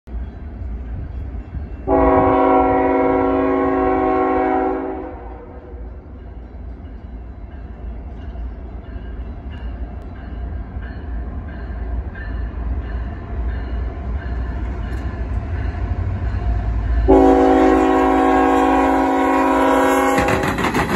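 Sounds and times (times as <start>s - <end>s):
train rumble: 0.1s - 20.9s
locomotive air horn blast: 1.9s - 5.8s, 17.1s - 20.6s.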